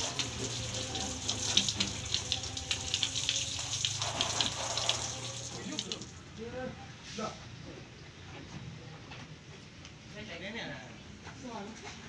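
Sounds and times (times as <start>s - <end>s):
water spraying against metal: 0.0s - 6.2s.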